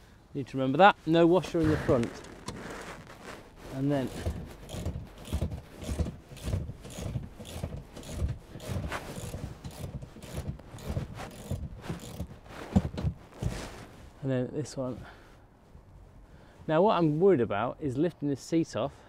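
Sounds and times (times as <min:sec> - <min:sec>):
spanner clicking on nut: 0:04.2 - 0:12.2.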